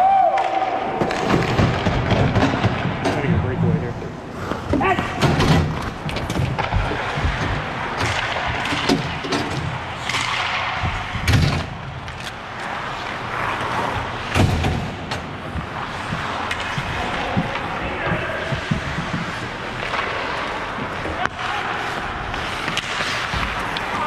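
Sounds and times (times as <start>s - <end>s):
hockey sticks clacking: 0.3s - 3.6s, 4.4s - 24.0s
skates scraping on ice: 1.0s - 24.0s
heavy thumps: 4.6s - 9.8s.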